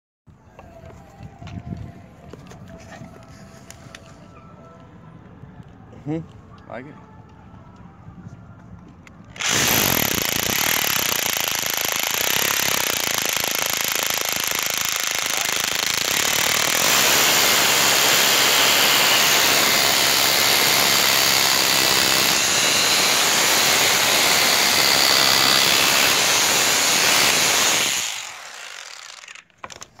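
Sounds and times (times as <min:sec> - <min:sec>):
rotary hammer drill drilling wood: 0:09.4 - 0:29.8.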